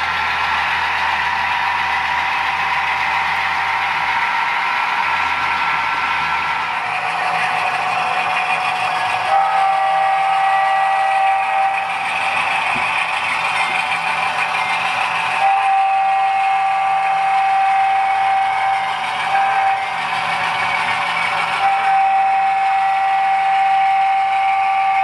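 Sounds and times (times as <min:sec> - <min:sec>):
diesel engine sound: 0:00.0 - 0:25.0
model train air horn: 0:06.6 - 0:13.1, 0:15.3 - 0:25.0.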